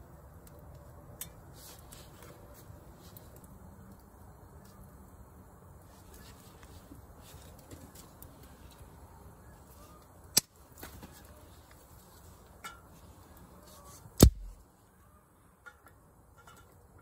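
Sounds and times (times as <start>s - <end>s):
campfire crackling: 0.0s - 17.0s
fire pop: 14.2s - 14.6s
stick knocking with low thud: 14.2s - 14.6s.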